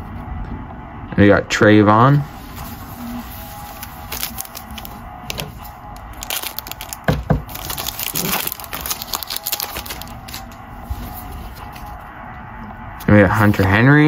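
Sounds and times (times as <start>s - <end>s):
foil pack crinkling: 2.5s - 10.6s
foil pack ripping: 3.3s - 10.6s.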